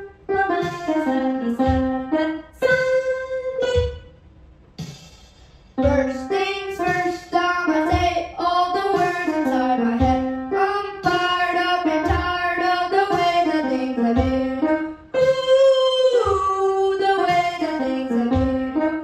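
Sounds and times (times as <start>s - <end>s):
upright piano: 0.0s - 4.1s, 5.8s - 19.0s
programmed beat with low thud: 0.0s - 19.0s
boy singing into a microphone: 5.8s - 18.8s.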